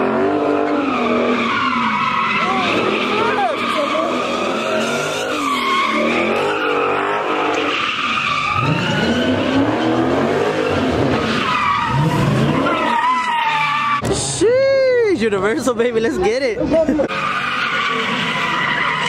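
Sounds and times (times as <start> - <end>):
car engine revving: 0.0 - 14.0
tyres squealing: 0.4 - 14.0, 17.1 - 19.0.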